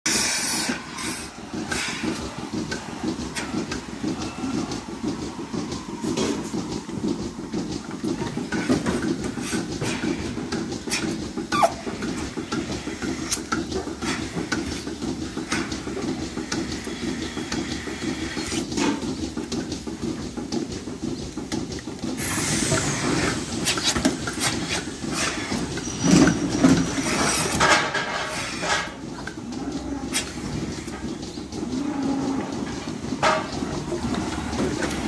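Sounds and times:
air hissing: 0:00.1 - 0:02.9
milking system mechanical hum: 0:00.1 - 0:35.0
metal clanks and knocks: 0:18.6 - 0:20.8, 0:21.4 - 0:35.0.

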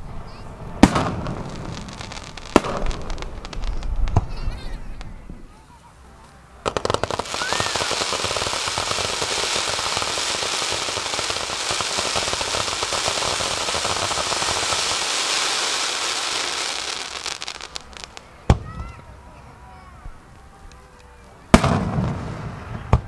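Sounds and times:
fireworks crackling: 0:00.6 - 0:19.2, 0:20.1 - 0:23.0
fireworks bangs: 0:00.8 - 0:05.2, 0:06.7 - 0:18.9, 0:21.5 - 0:23.0.

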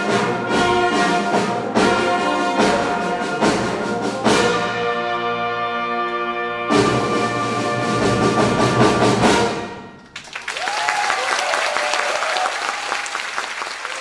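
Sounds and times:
audience applauding: 0:10.2 - 0:14.0
voices cheering: 0:10.3 - 0:14.0.

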